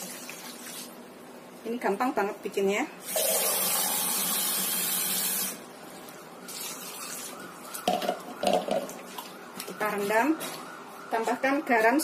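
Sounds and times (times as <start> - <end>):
tap water running into a bowl: 0.0 - 1.0, 6.5 - 9.7.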